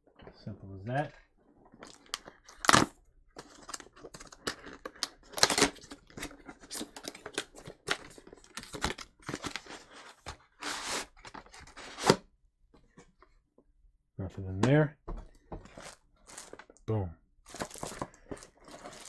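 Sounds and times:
cardboard scraping and rustling: 0:08.6 - 0:12.2, 0:15.6 - 0:16.6.

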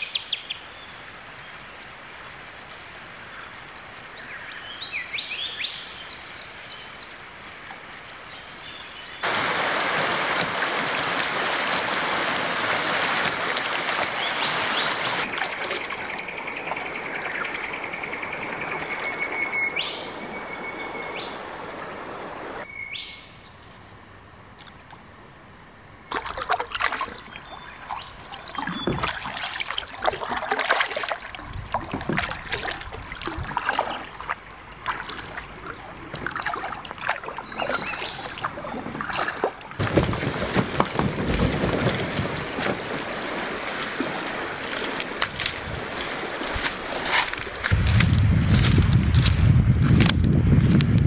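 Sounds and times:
water sloshing around hull: 0:07.6 - 0:22.7, 0:26.0 - 0:50.9
paddle blades splashing: 0:09.2 - 0:22.7, 0:26.1 - 0:50.8
bird calling: 0:14.1 - 0:25.4.

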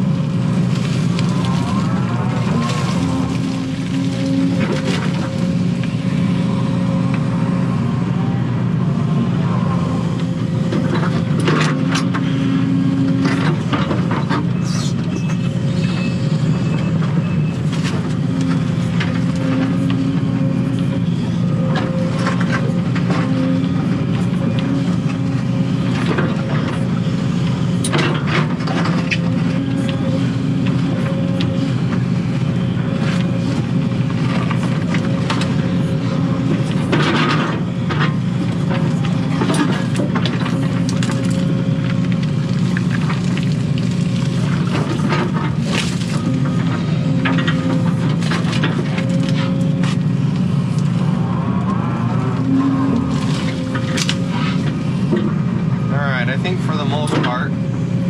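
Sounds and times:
excavator engine and hydraulics: 0:00.0 - 0:58.0.

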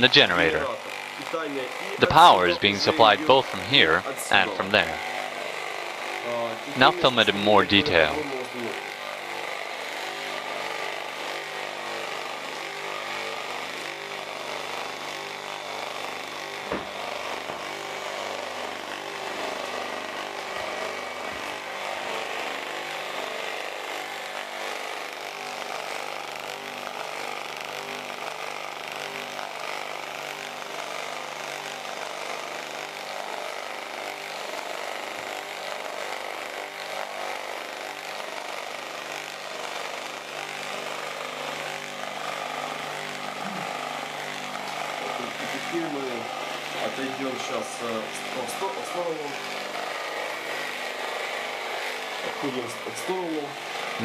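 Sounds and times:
motor whirring hum: 0:00.0 - 0:54.0
brief knock: 0:16.7 - 0:16.9.

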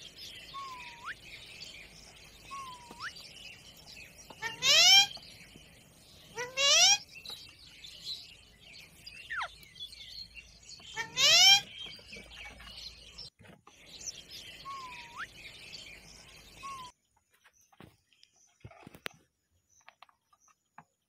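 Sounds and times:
whistled bird notes: 0:00.0 - 0:17.0
faint bird chatter: 0:00.0 - 0:21.0
parakeet harsh call: 0:04.4 - 0:05.1, 0:06.3 - 0:07.1, 0:10.9 - 0:11.7.

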